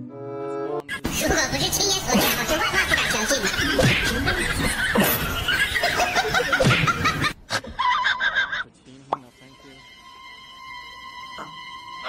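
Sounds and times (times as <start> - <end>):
people laughing and snickering: 0.9 - 8.8.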